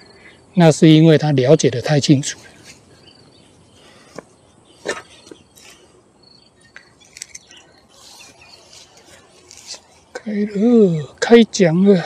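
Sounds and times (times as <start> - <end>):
netting clicks and rustle: 6.9 - 10.2.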